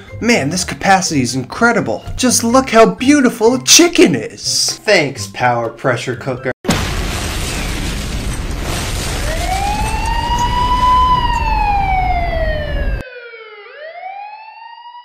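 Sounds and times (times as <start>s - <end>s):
low explosion rumble: 6.7s - 13.0s
siren winding up and down: 9.2s - 15.0s.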